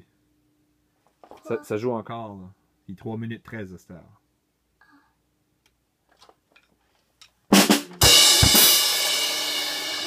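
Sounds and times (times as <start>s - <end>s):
loud drum hits: 7.6s - 10.0s.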